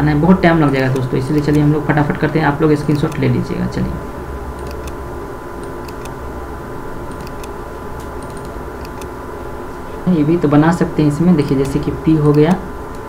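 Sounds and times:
low electrical hum: 0.0 - 13.0
computer mouse clicking: 0.7 - 1.7, 2.8 - 3.3, 4.6 - 5.0, 5.6 - 6.2, 7.1 - 9.2, 11.5 - 13.0.

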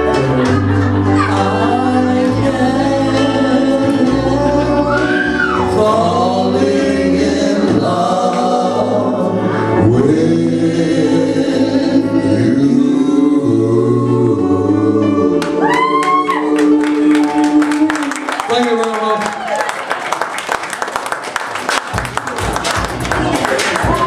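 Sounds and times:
men singing karaoke: 0.0 - 18.4
recorded backing track: 0.0 - 19.2, 21.5 - 24.0.

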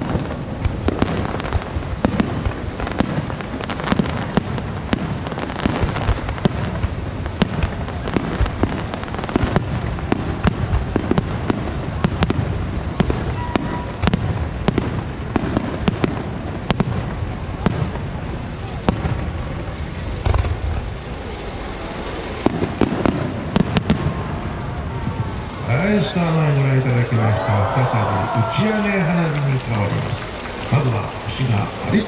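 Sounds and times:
continuous low rumble: 0.0 - 32.0
firework shells bursting: 20.2 - 20.9.

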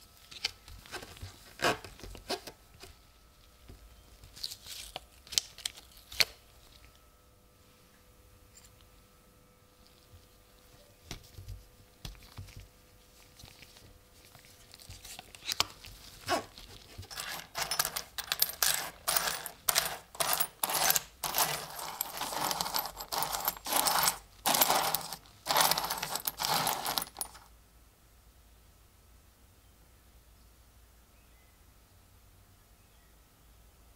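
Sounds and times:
faint handling sounds: 9.8 - 27.5
coins clinking and jingling: 17.1 - 27.5.

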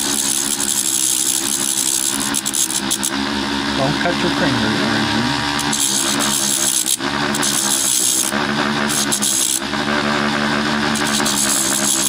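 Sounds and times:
cutoff wheel grinding metal: 0.0 - 3.7, 5.4 - 9.8, 10.8 - 12.0
rotary tool motor whine: 0.0 - 3.8, 5.4 - 12.0.

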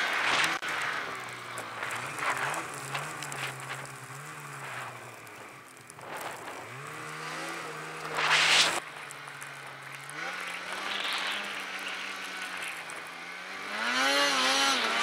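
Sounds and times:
snowmobile engine revving: 0.0 - 15.0
loud rushing hiss: 7.2 - 8.8.

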